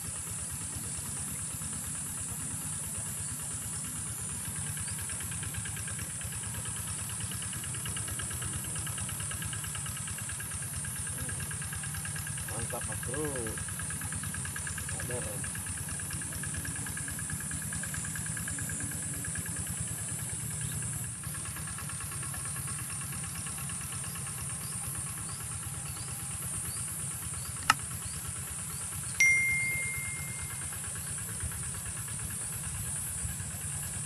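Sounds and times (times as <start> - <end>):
sharp click: 27.6 - 27.8
bell-like ding: 29.2 - 30.7
high whine: 29.2 - 30.7.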